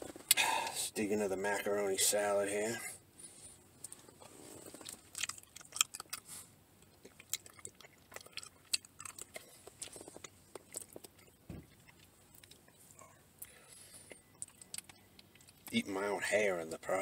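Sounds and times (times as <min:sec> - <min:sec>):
person chewing wetly: 0:04.6 - 0:15.7.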